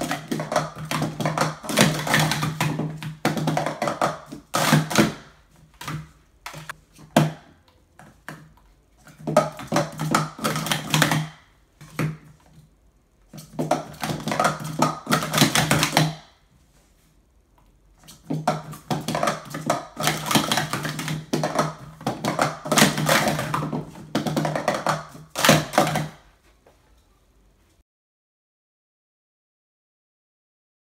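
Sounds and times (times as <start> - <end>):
plastic cups clattering: 0.0 - 12.7, 13.3 - 16.3, 18.0 - 26.3.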